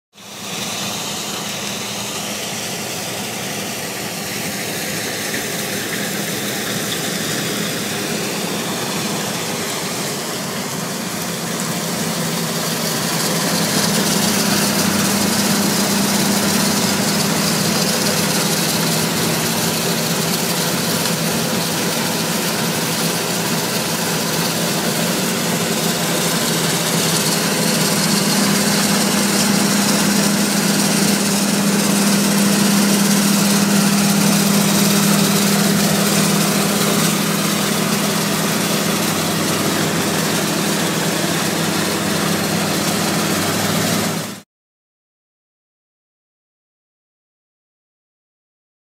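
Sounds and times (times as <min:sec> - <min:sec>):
combine harvester droning: 0:00.2 - 0:44.4.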